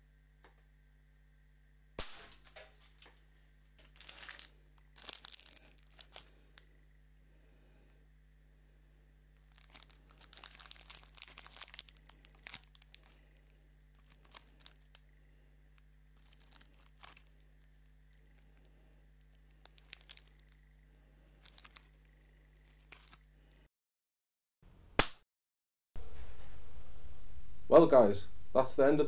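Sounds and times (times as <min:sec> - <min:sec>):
wrapper crinkling: 0:03.8 - 0:06.7, 0:09.4 - 0:15.1, 0:15.8 - 0:23.7.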